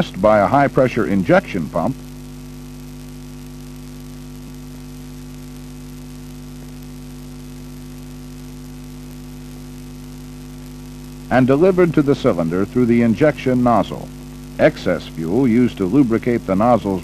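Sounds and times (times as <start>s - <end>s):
faint hiss: 0.0s - 17.0s
steady electrical hum: 0.0s - 17.0s.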